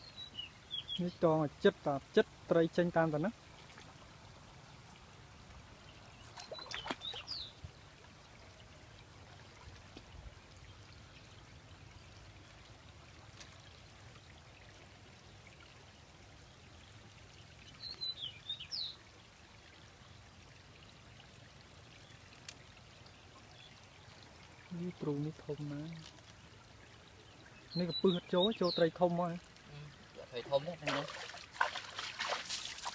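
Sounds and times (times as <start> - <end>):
bird chirping: 0.0 - 1.2, 5.9 - 7.6, 17.6 - 19.0, 27.1 - 29.1
shallow water trickling: 0.0 - 32.9.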